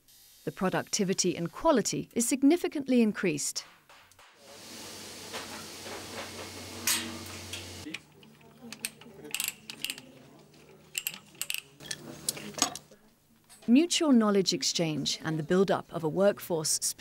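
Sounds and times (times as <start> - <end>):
steady hum and hiss: 4.4 - 8.0
metal plug clinking into pipe fitting: 6.9 - 10.1, 10.9 - 12.8.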